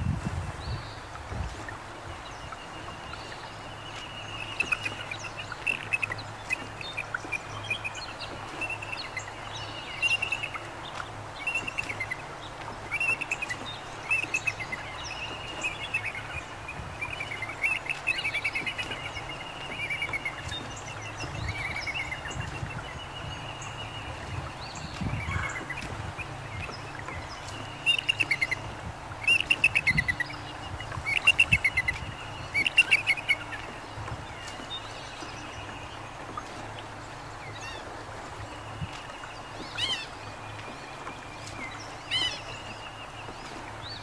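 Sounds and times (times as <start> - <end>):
wind: 0.0 - 44.0
birds chirping and singing: 13.0 - 44.0.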